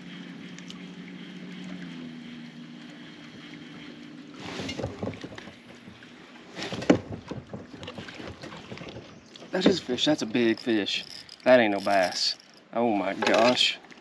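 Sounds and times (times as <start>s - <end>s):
clicks knocks and rustling: 6.6s - 9.8s
fishing reel cranking: 10.1s - 12.8s.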